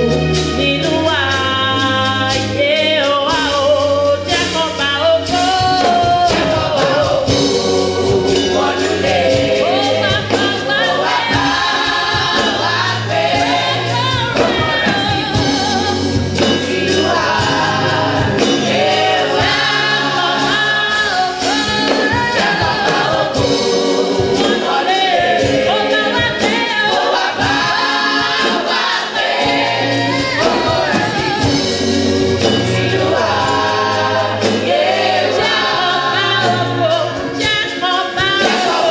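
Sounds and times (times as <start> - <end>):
women's choir singing amplified: 5.7 - 38.9.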